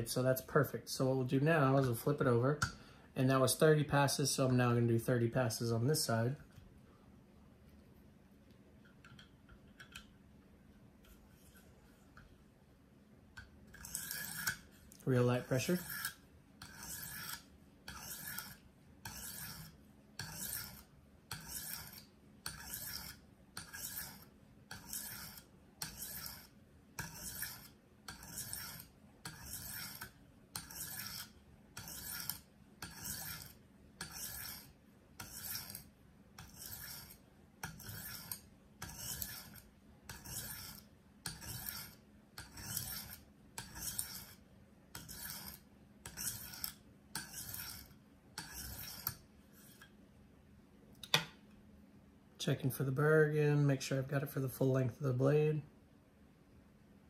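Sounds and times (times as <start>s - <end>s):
sharpening stone rasping on knife: 13.7s - 49.9s.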